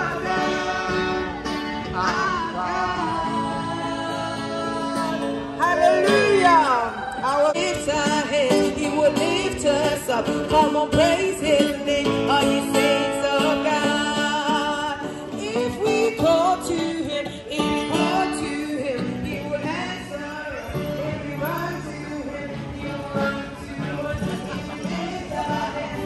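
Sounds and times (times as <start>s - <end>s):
acoustic guitar: 0.0s - 26.0s
woman singing into microphone: 0.0s - 26.0s.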